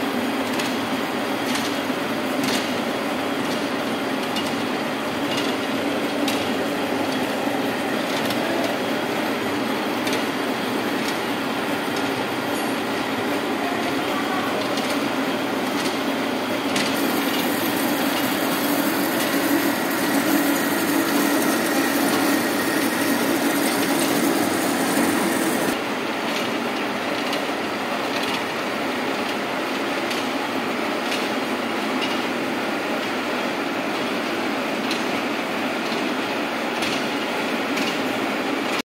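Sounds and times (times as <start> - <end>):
lathe running: 3.0 - 25.8
boring tool cutting metal: 16.9 - 25.8.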